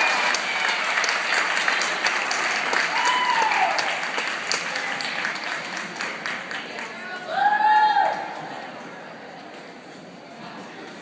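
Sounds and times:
small crowd clapping: 0.0s - 8.2s.

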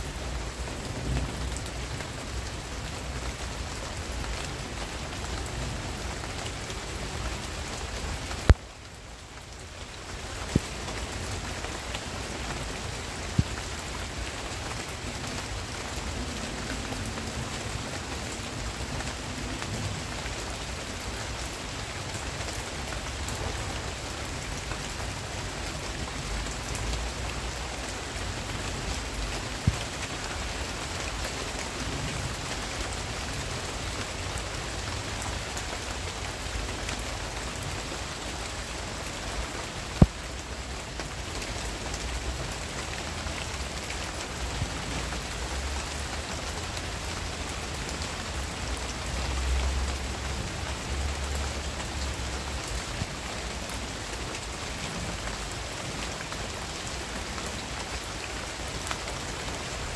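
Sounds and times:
rain falling on foliage: 0.0s - 59.9s.

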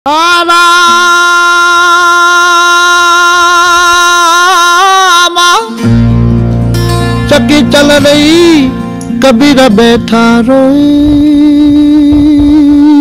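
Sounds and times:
low instrumental accompaniment: 5.8s - 11.4s.

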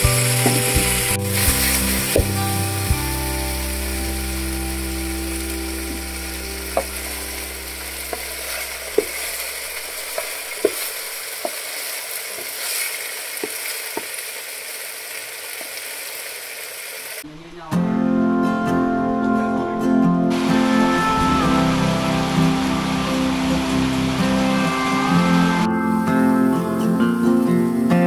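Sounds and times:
fish sizzling in hot oil: 0.0s - 17.2s.

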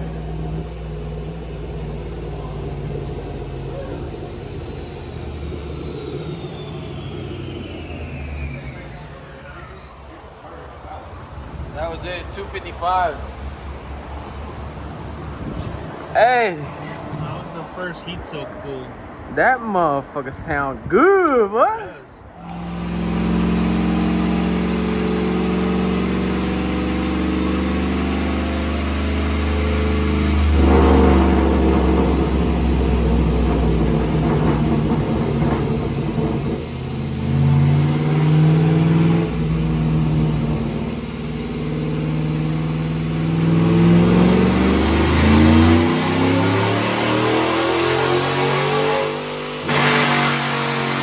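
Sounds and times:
engine revving on a dyno: 0.0s - 9.7s, 22.4s - 51.0s
thin high whine: 0.0s - 9.9s, 22.4s - 50.6s.

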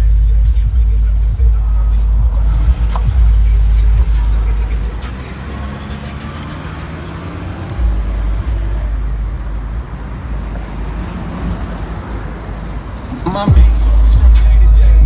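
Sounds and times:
deep low rumble: 0.0s - 5.0s
car driving away: 0.0s - 15.0s.

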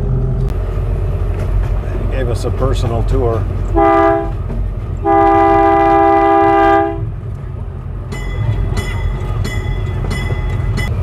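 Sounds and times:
low rumble of running train: 0.0s - 11.0s
wheels clicking over rail joints: 1.1s - 5.1s, 7.2s - 11.0s
train horn blast: 3.7s - 4.4s, 5.0s - 7.1s.

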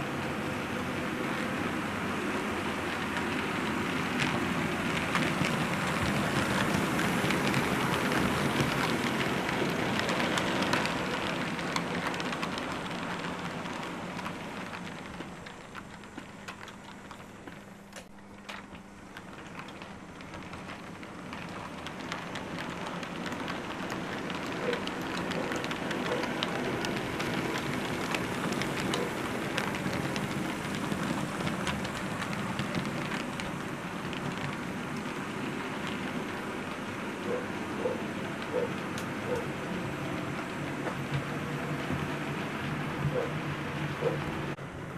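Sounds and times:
model train motor and wheels rumbling: 0.0s - 44.9s
small clicks over track: 2.2s - 44.5s.

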